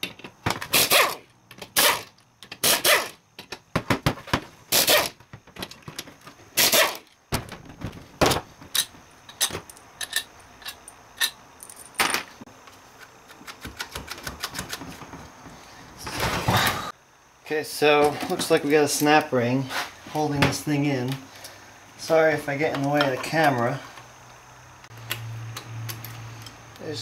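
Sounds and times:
metal clicks and clinks: 8.7 - 12.2.

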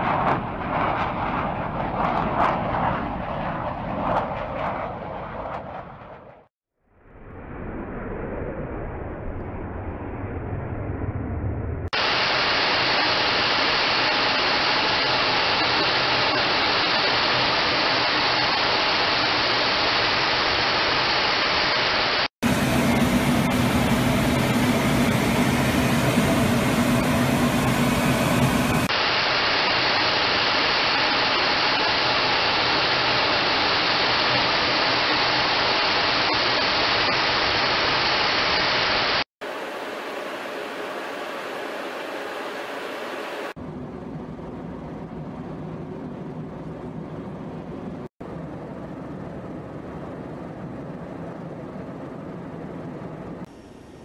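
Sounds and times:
jet aircraft rushing noise: 0.0 - 6.5, 7.1 - 54.0
low hum: 0.0 - 20.6, 38.8 - 54.0.

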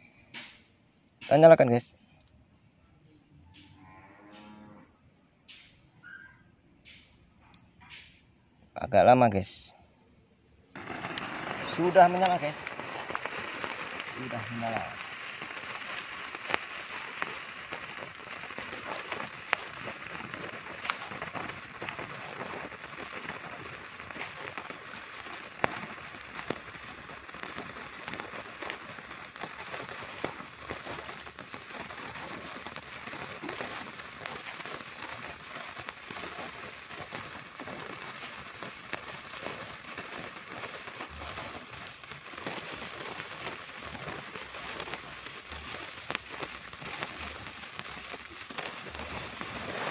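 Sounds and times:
sparkler fizzing and crackling: 0.0 - 1.9, 5.4 - 5.8, 6.8 - 7.1, 7.8 - 8.1, 10.6 - 49.9
sharp cracks: 10.7 - 49.9.

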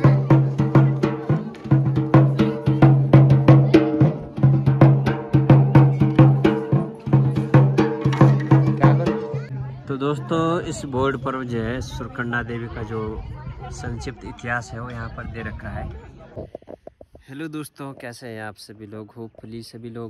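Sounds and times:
drum beaten in fast rhythm: 0.0 - 9.6.

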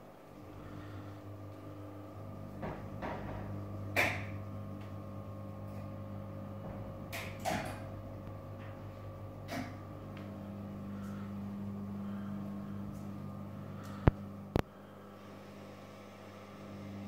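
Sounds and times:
storage lift motor humming: 0.0 - 17.0
mechanical clunks and knocks: 2.6 - 4.4.

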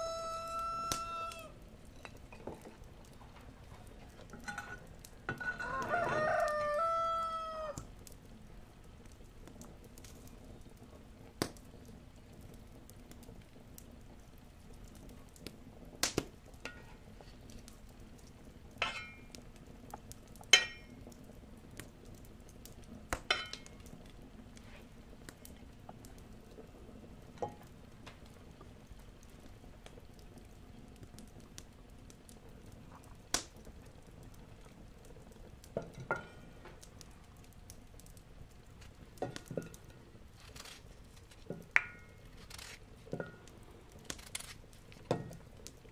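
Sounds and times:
butter sizzling in frying pan: 38.8 - 43.4.

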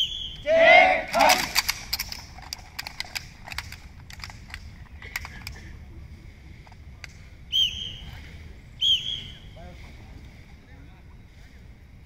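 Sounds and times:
rifles dry-firing clicks: 1.1 - 5.7.

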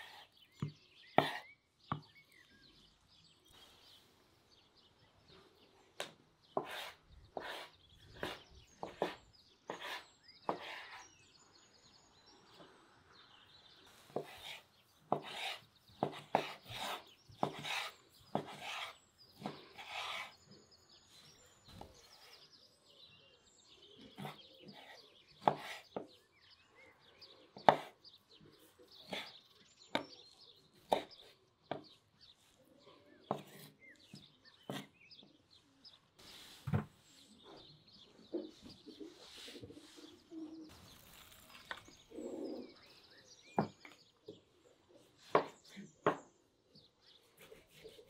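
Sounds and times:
birds chirping faintly: 0.0 - 48.0.

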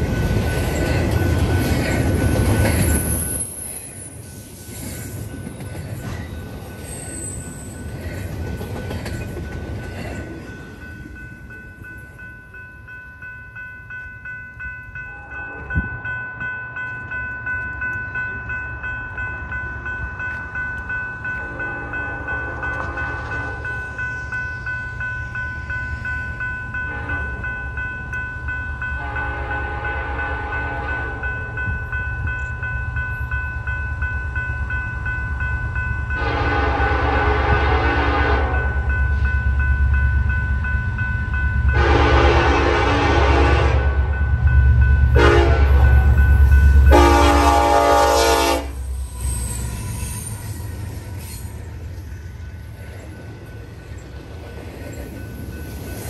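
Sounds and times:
steady high ringing tone: 0.0 - 37.1, 38.4 - 56.0
freight train rumbling on steel wheels: 0.0 - 56.0
train air horn blasts: 26.9 - 27.4, 29.0 - 31.2, 36.2 - 38.7, 41.7 - 44.1, 45.2 - 46.2, 46.9 - 48.9.

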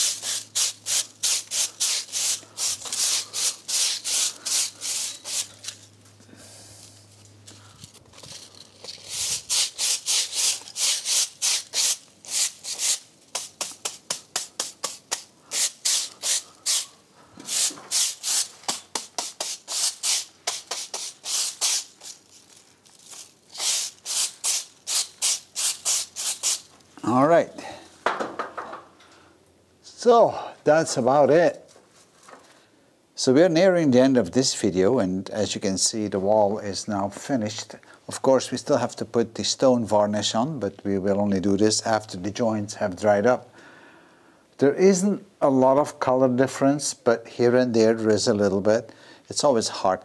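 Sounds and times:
brush scrubbing mortar: 0.0 - 5.7, 8.8 - 16.9, 17.5 - 26.7.

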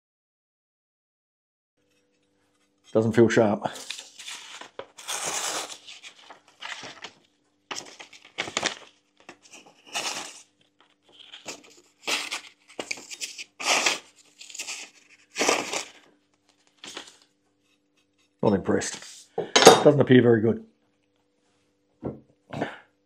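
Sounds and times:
knife tearing paper: 3.7 - 16.0, 16.8 - 17.2.

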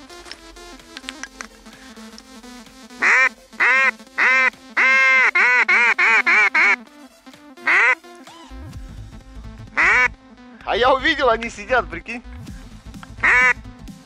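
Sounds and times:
duck quacking: 3.0 - 6.8, 7.6 - 8.0, 9.8 - 10.1, 13.2 - 13.6.

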